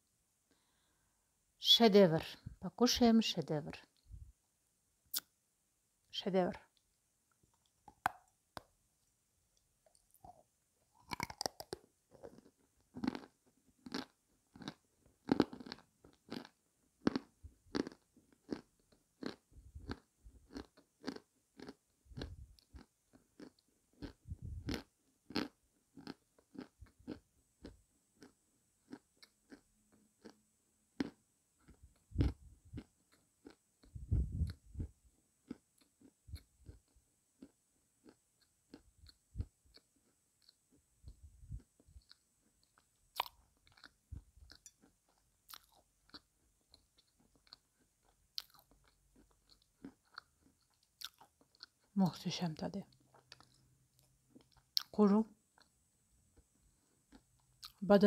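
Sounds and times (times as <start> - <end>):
chewing crunchy clay: 9.8 - 30.4, 31.0 - 52.0, 52.9 - 55.8.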